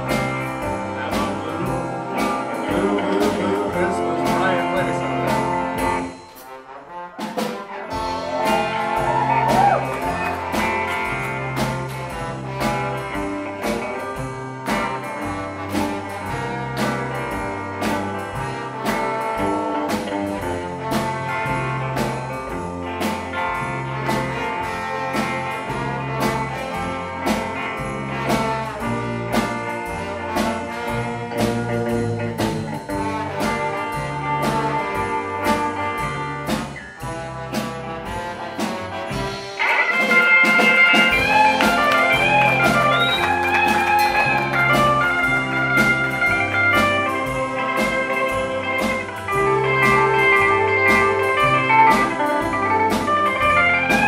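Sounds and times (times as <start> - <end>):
upright bass walking line: 0.0 - 6.1, 8.0 - 39.4, 40.7 - 54.0
electric guitar: 0.0 - 6.3, 7.9 - 54.0
drum kit steady beat: 0.0 - 54.0
horns: 0.0 - 54.0.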